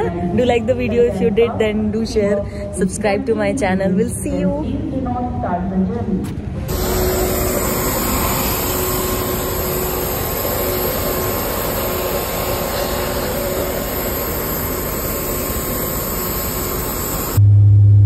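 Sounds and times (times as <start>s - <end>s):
aircraft engine roar: 0.0s - 18.0s
faint steady whine: 6.6s - 18.0s.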